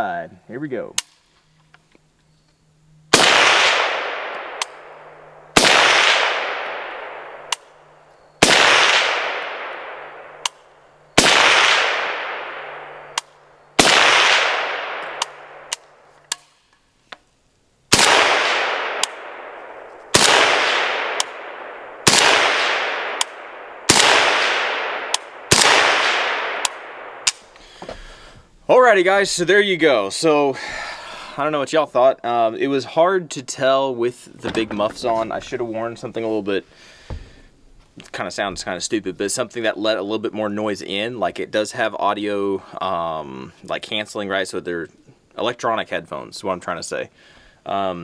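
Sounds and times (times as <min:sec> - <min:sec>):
suppressed gunshots with echo: 0:03.1 - 0:16.7, 0:17.9 - 0:27.6.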